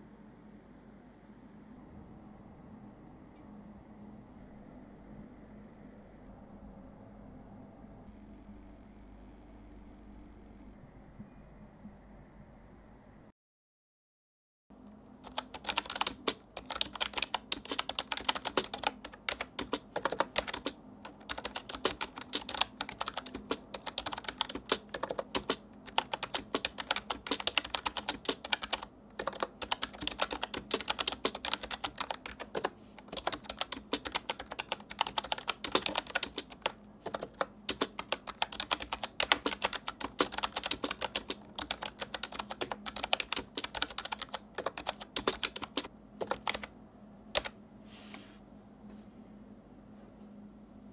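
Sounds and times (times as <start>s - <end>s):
fast keyboard typing: 15.2s - 46.7s, 47.3s - 47.6s.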